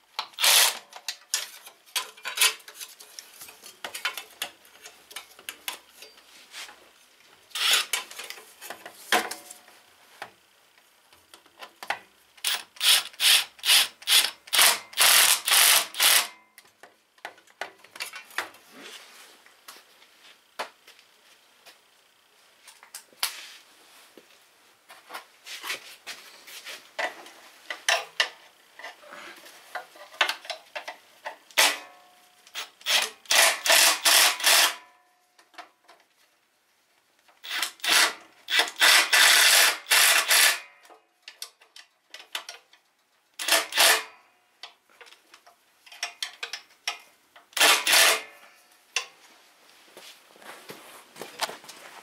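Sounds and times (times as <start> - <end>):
cordless drill on metal: 0.4 - 0.9, 7.5 - 8.0, 12.4 - 16.4, 32.5 - 34.9, 37.4 - 40.7, 43.4 - 44.1, 47.6 - 48.3.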